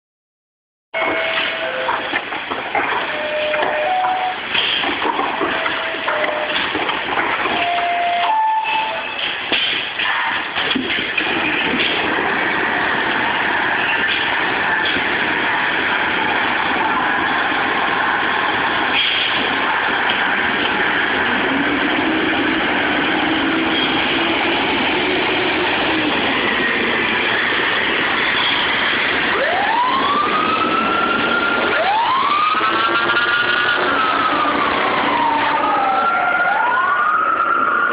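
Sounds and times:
fire truck diesel engines running: 1.1 - 37.9
siren wailing: 2.8 - 4.5, 5.3 - 6.8, 7.4 - 9.2, 21.1 - 37.9.

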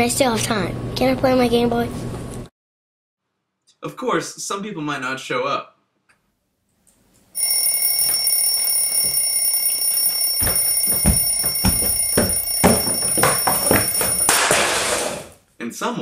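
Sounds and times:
high electronic alarm tone: 7.4 - 14.5.

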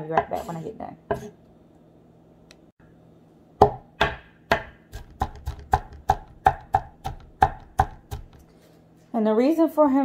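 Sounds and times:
knife chopping onion on board: 3.6 - 8.5.

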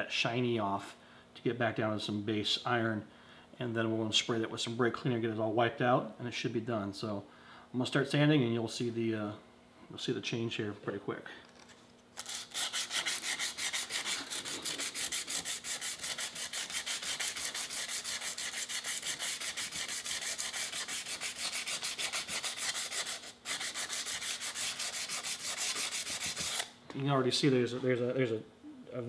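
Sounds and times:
sandpaper scratching metal: 12.2 - 26.7.

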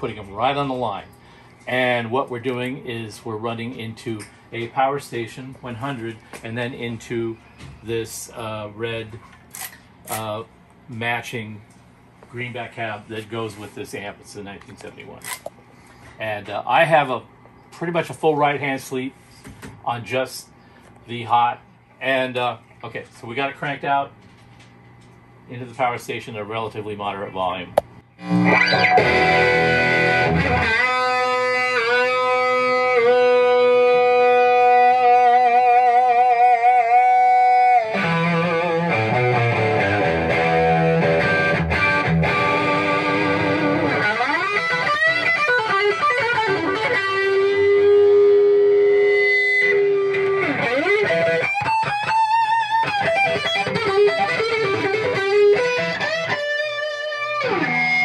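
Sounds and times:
overdriven electric guitar: 28.2 - 58.0.

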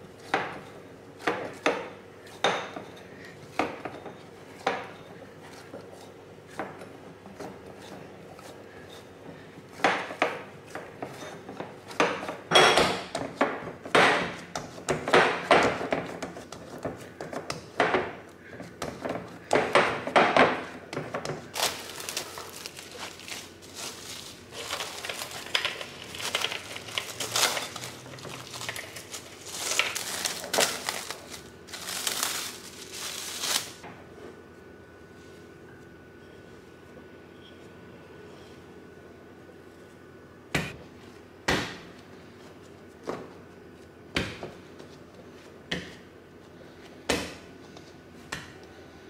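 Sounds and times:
dough kneaded in a glass bowl: 0.0 - 33.6
cling film crinkling: 21.5 - 33.8.

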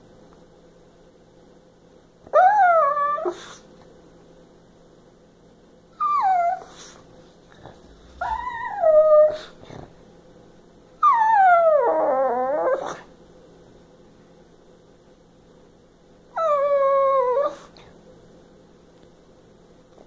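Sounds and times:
small dog whining howls: 2.3 - 3.6, 6.0 - 7.0, 8.0 - 9.5, 11.0 - 13.1, 16.3 - 17.7.

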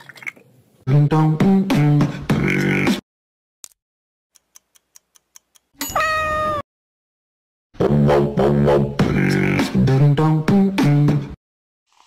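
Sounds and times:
beatbox-like music: 0.9 - 3.0, 7.8 - 11.4.

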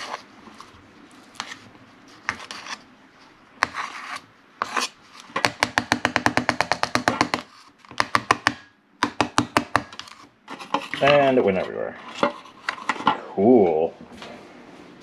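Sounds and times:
rubbing and scraping in a tray: 0.0 - 5.5, 7.2 - 8.0, 9.8 - 13.2.

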